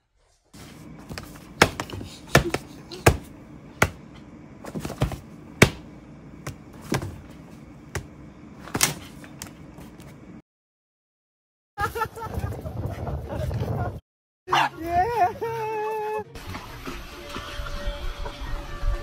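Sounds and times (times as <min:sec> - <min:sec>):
hand slapping paper notebooks: 0:00.6 - 0:04.0, 0:04.6 - 0:10.2
faint steady hum: 0:00.6 - 0:10.4.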